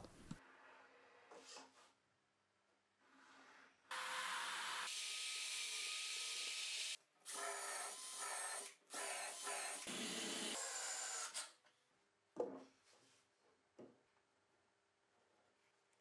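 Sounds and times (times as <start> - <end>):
drill boring into wood: 3.9 - 11.5.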